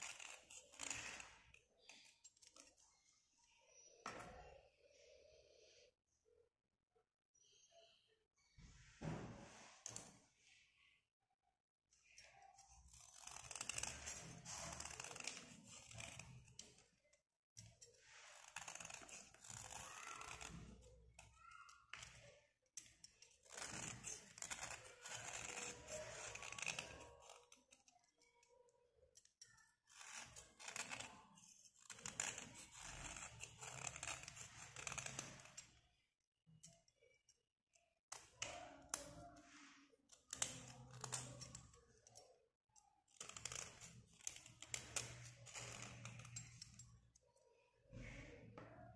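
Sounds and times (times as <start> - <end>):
knife blade scraping pencil: 0.0 - 2.8, 12.0 - 28.6, 29.2 - 35.9, 38.1 - 42.3, 43.1 - 47.3.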